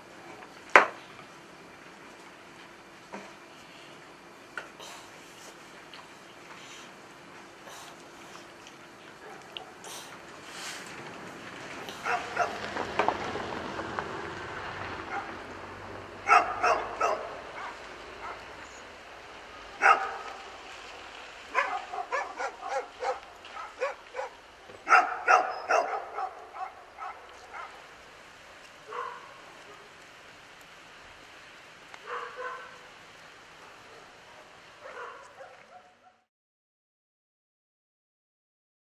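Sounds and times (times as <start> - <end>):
dog barking: 9.2 - 9.8, 12.0 - 12.6, 15.1 - 15.4, 16.2 - 18.5, 19.8 - 20.5, 21.5 - 27.9, 28.9 - 29.9, 32.0 - 32.8, 33.6 - 36.3.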